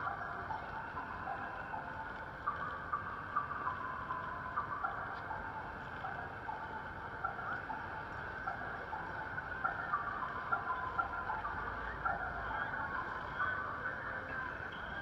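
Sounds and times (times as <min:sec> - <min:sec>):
rain: 0:00.0 - 0:15.0
wet traffic: 0:00.0 - 0:15.0.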